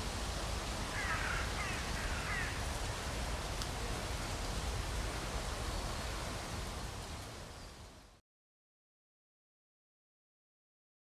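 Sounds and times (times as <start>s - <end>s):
outdoor background hiss: 0.0s - 8.2s.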